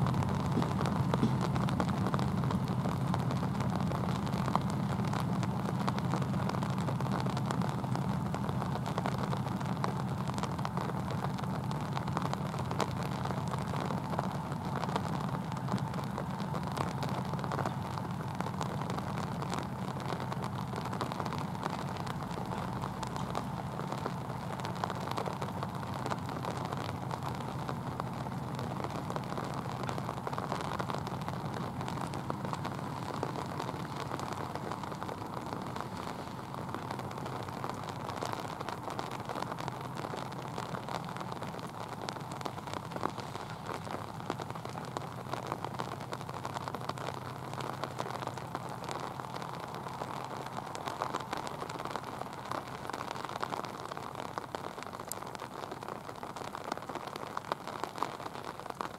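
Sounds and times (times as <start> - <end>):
diesel locomotive hum: 0.0 - 10.3
steady rain: 0.0 - 58.9.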